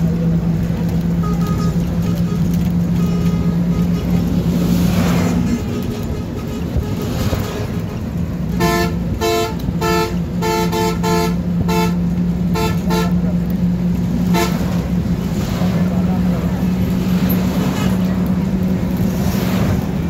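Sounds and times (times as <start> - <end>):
bus engine and road noise: 0.0 - 20.0
vehicle horn tooting: 1.2 - 4.4, 8.5 - 13.2, 14.3 - 14.7.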